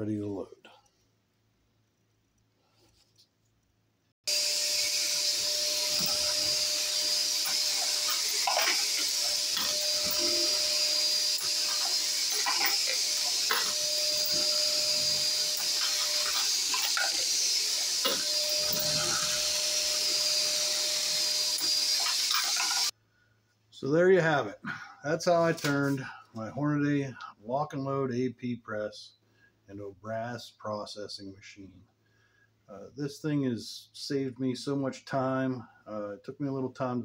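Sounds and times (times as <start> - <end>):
vacuum cleaner running: 4.3 - 22.9.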